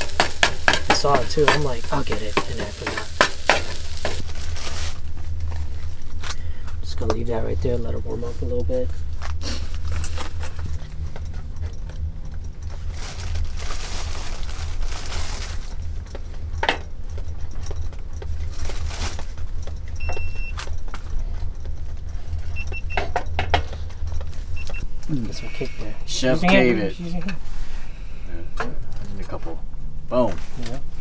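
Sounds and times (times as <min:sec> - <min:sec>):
frying pan knocks and clatter: 0:00.0 - 0:04.2
steady low rumble: 0:00.0 - 0:31.0.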